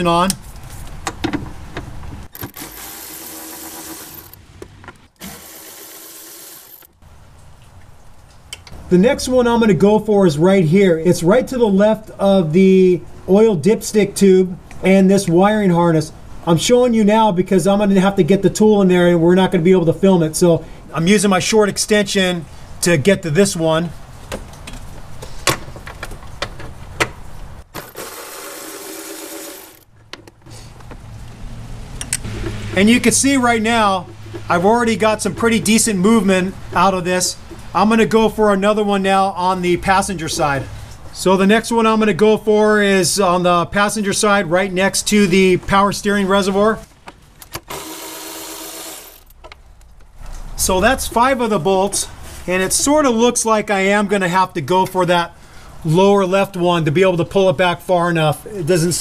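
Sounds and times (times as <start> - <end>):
cordless ratchet whirring: 2.4 - 4.4, 5.2 - 6.9, 47.6 - 49.3.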